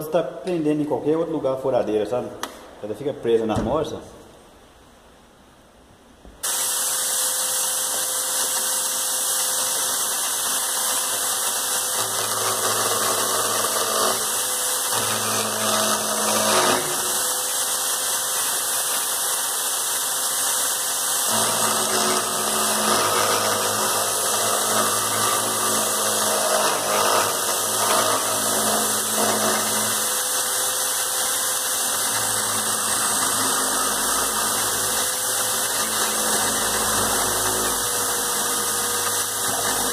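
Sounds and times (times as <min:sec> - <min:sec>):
electric drill whining: 0:06.4 - 0:18.4, 0:21.1 - 0:39.9.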